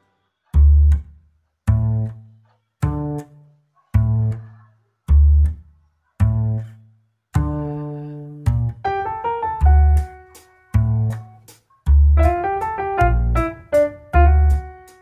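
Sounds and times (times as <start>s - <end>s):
deep bass notes: 0.6s - 1.1s, 1.7s - 2.2s, 4.0s - 4.4s, 5.1s - 5.6s, 6.2s - 6.7s, 7.4s - 14.9s.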